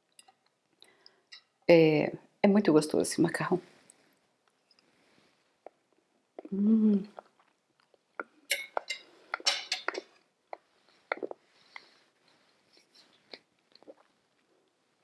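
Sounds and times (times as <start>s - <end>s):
person humming while eating: 6.4s - 7.2s
cutlery clinking on a plate: 8.5s - 9.9s.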